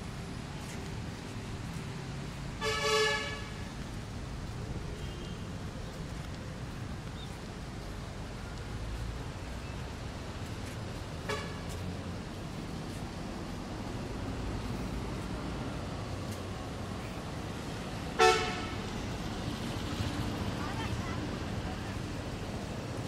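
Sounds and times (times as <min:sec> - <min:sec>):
vehicle horn honk: 0:02.6 - 0:03.7, 0:11.3 - 0:11.6, 0:18.2 - 0:18.8.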